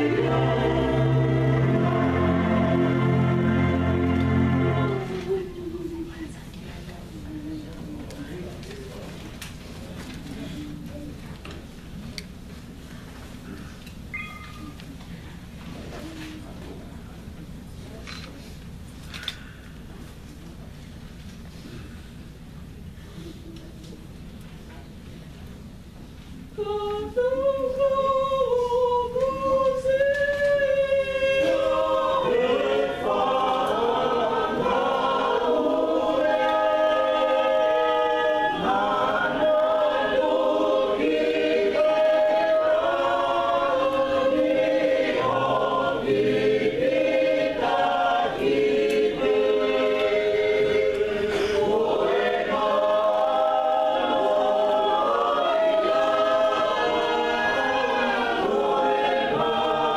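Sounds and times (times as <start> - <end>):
choir singing unaccompanied: 0.0 - 5.7, 26.6 - 59.9.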